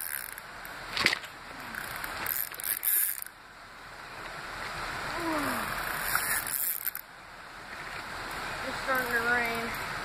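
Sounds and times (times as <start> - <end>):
fishing reel clicking and whirring: 0.0 - 0.5, 1.7 - 3.3, 5.7 - 7.0
river flowing: 0.0 - 10.0.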